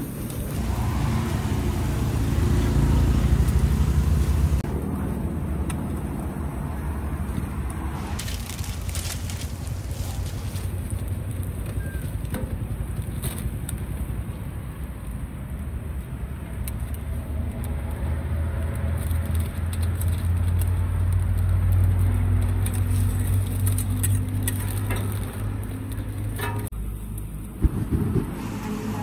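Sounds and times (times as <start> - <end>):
motor vehicle passing: 0.0 - 11.6, 27.6 - 29.0.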